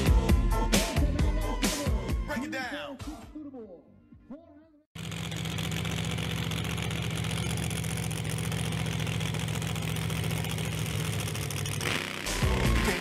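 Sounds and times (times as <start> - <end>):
truck engine idling: 5.0 - 13.0.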